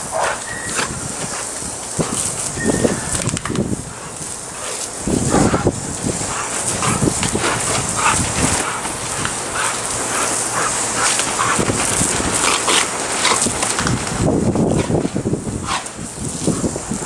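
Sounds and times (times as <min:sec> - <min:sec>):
hissing water jet: 0:00.0 - 0:17.0
dog barking and yelping: 0:05.3 - 0:07.1.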